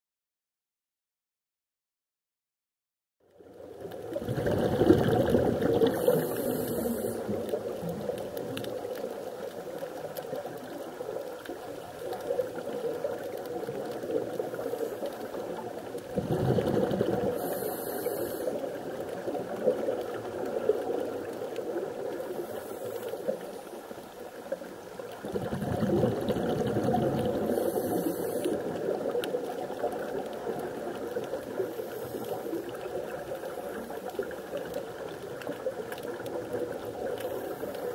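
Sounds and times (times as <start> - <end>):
underwater wash: 3.3 - 37.9
bubbling exhaust: 4.2 - 7.7, 25.2 - 29.1
diver breathing through regulator: 5.8 - 7.4, 16.6 - 18.7, 27.2 - 28.8, 31.7 - 32.8.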